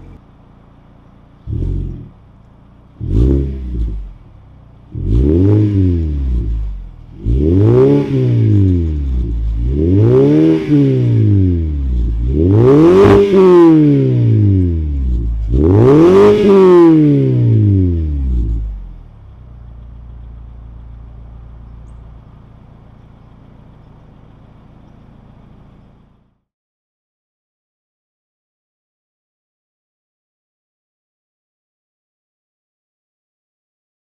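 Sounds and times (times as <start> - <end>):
car engine idling: 0.0 - 26.4
car engine revving: 0.0 - 26.4.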